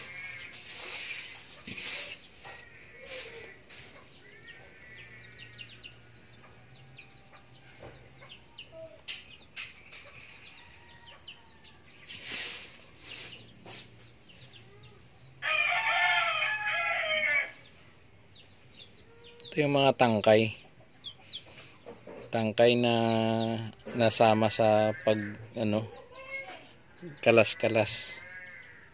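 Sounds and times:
dry leaves rustling and crackling: 0.0 - 3.5
rooster crowing: 15.4 - 17.6.

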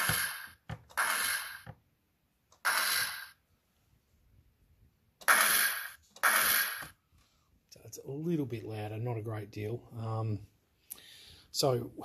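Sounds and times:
electronic grenade launcher effect: 5.2 - 6.9.

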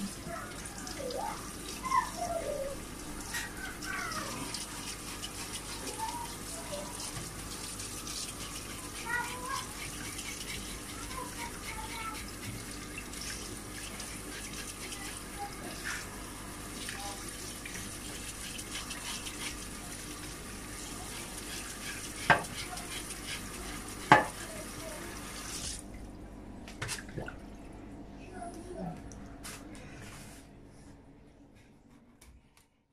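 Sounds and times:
tap water running into sink: 0.0 - 25.8.

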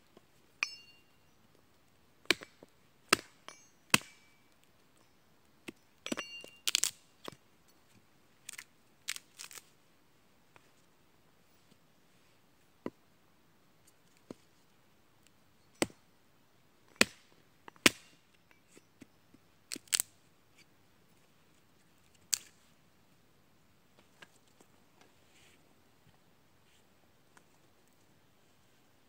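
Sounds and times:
hatchet chopping wood: 2.2 - 4.3, 16.9 - 18.2.

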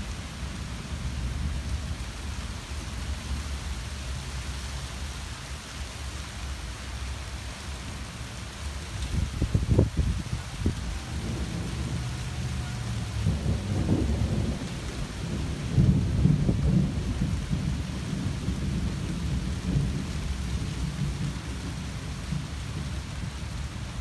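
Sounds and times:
rain falling on trees: 0.0 - 24.0
thunder rumbling: 9.1 - 24.0.

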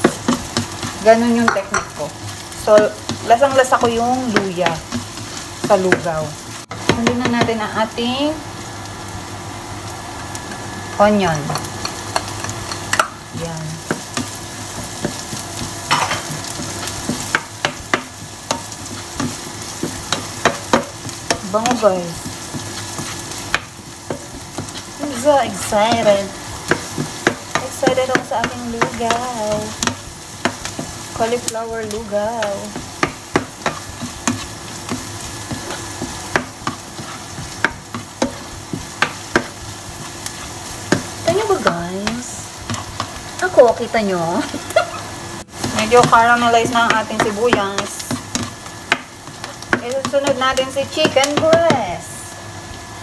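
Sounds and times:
onion sizzling in a frying pan: 0.0 - 53.0
spatula scraping a frying pan: 13.8 - 41.8.

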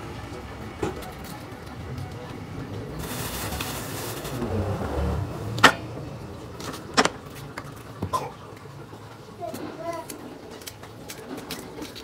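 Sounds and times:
low handling rumble: 0.0 - 8.0.

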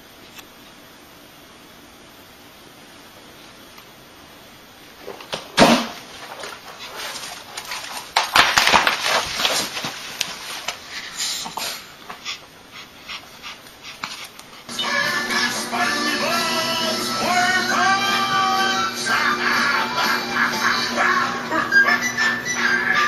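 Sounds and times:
rustling: 4.9 - 14.7
small dog noises: 10.6 - 14.8.

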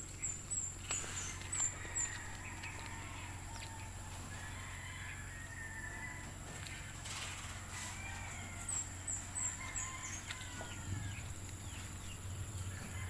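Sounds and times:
rooster crowing: 1.4 - 6.7, 7.4 - 11.8, 12.6 - 13.0.

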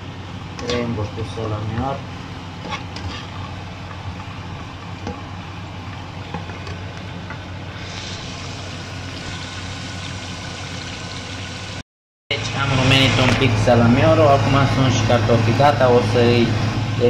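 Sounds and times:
potato slices frying in oil: 0.5 - 11.8
sausage sizzling in frying pan: 7.8 - 11.8.

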